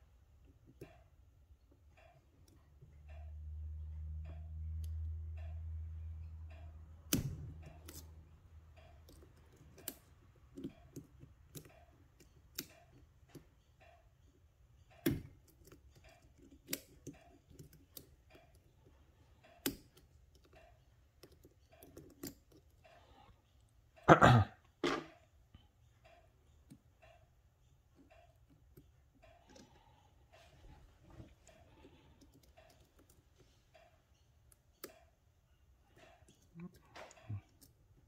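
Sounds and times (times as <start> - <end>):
sharp metallic clicks: 0.6 - 23.1.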